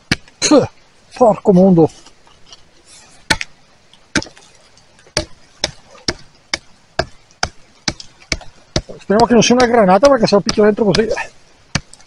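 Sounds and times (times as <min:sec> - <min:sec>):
hoe chopping into stony ground: 0:03.2 - 0:12.0.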